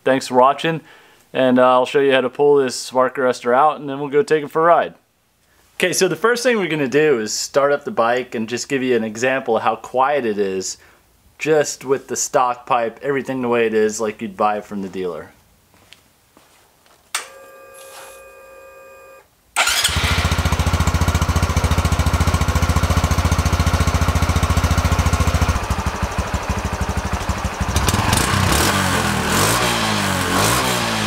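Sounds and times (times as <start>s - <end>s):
faint steady hum: 15.3s - 19.6s
motorcycle engine starting and idling: 19.6s - 31.0s.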